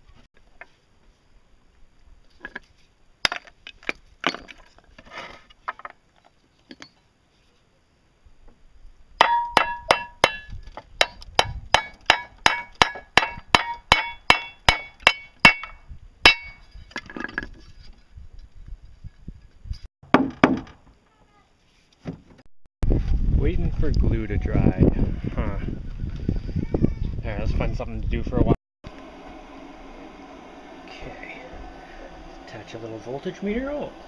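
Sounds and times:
steel plate ringing: 9.2s - 16.7s.

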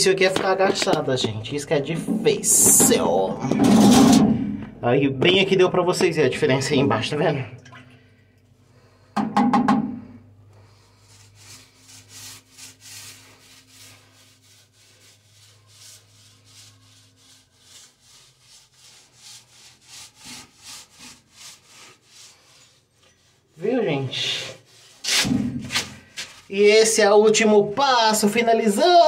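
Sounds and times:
paint roller swishing on wall: 10.6s - 27.0s.

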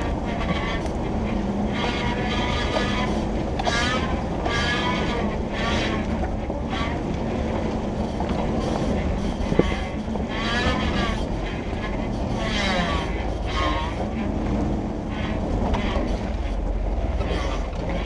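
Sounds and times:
off-road vehicle engine running low: 0.0s - 18.0s
short high-pitched squeals: 8.6s - 14.2s.

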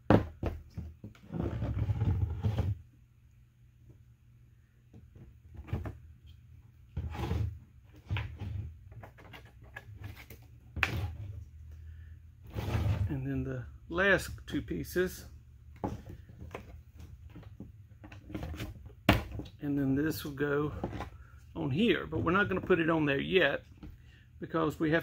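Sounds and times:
plastic scraping and rubbing: 1.0s - 2.8s, 12.5s - 13.2s, 15.8s - 19.6s, 20.6s - 21.2s.

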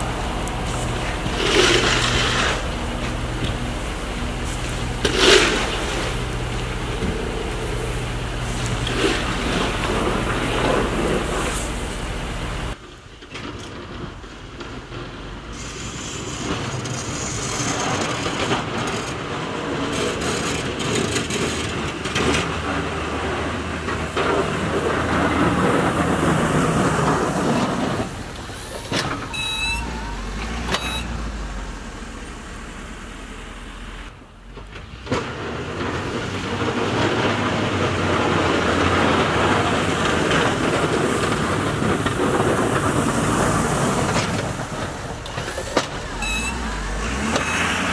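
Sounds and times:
truck diesel engine running: 0.0s - 12.8s, 20.9s - 47.9s
short high chirps: 28.5s - 31.2s, 46.2s - 46.8s.

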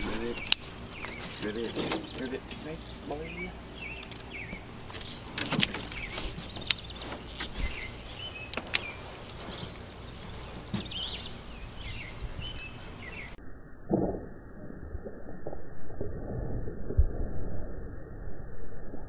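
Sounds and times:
songbirds chirping: 0.0s - 13.4s
sharp clicks and knocks: 4.0s - 7.7s, 8.5s - 11.0s.

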